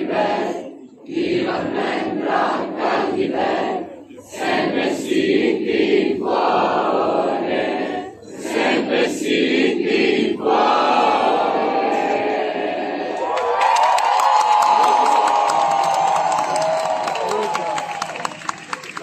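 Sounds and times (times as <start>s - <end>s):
crowd singing in unison: 0.0s - 13.4s.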